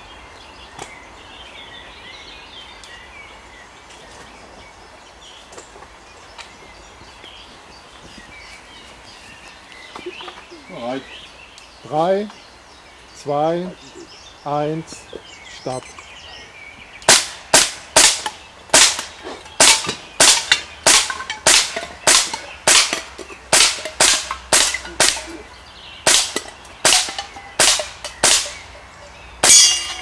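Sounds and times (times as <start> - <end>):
gas gun shots: 17.1 - 25.3, 26.1 - 28.6.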